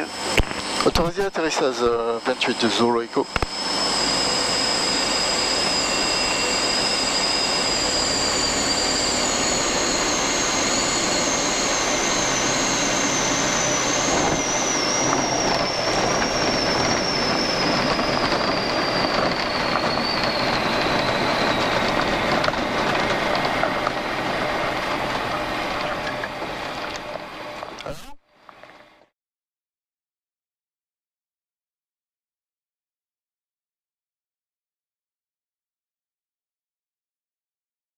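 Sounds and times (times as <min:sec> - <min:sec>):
aircraft engine and propeller whine: 0:00.0 - 0:29.1
wheels rumbling on runway: 0:00.2 - 0:29.0.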